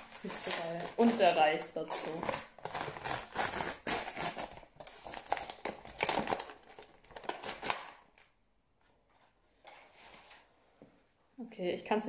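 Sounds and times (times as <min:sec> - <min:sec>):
aluminium foil crinkling: 0:00.0 - 0:08.4.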